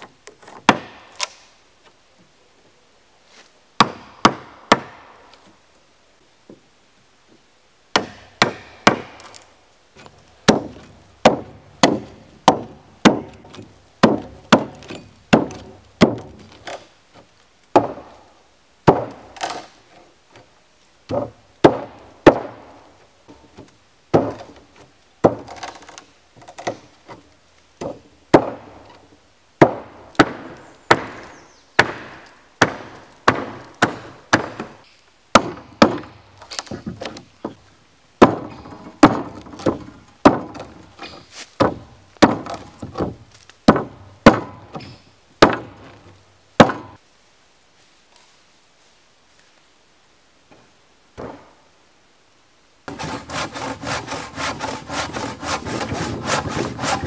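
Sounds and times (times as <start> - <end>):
hatchet chopping wood: 0.5 - 1.4, 3.8 - 5.1, 7.9 - 9.4, 10.4 - 16.8, 17.7 - 18.2, 18.8 - 19.7, 21.1 - 22.7, 23.6 - 27.2, 27.8 - 28.8, 29.6 - 37.2, 38.2 - 46.0, 46.6 - 47.0, 52.9 - 57.0.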